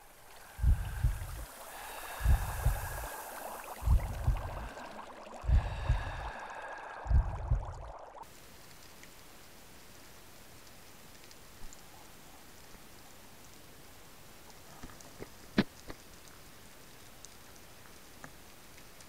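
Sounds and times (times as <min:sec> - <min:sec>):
watery hiss: 0:00.0 - 0:08.9
deep double thumps: 0:00.6 - 0:01.4, 0:02.2 - 0:02.9, 0:03.8 - 0:04.7, 0:07.0 - 0:08.0.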